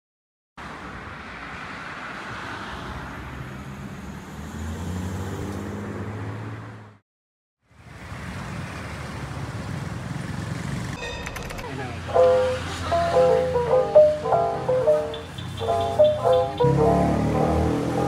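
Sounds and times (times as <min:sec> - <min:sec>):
city street traffic: 0:00.6 - 0:07.0, 0:07.6 - 0:18.0.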